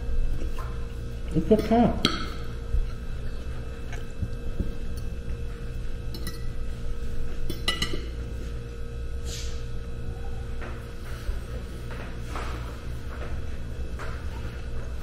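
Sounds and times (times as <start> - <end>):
fork clinking on a plate: 6.1 - 6.5, 7.5 - 8.1.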